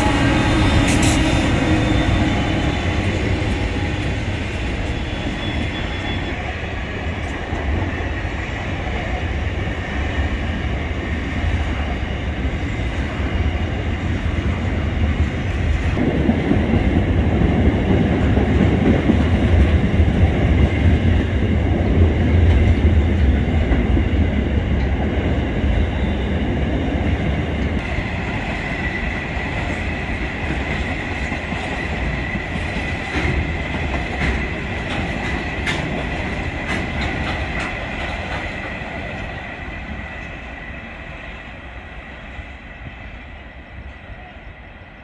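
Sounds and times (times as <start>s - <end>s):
train wagons rumbling on rails: 0.0s - 45.0s
high-pitched wheel squeal: 0.1s - 3.4s, 4.6s - 6.5s
wheels clicking over rail joints: 32.5s - 39.3s.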